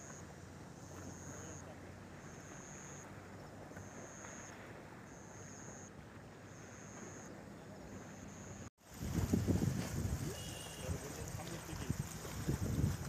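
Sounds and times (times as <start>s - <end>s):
wind buffeting microphone: 8.9s - 13.0s.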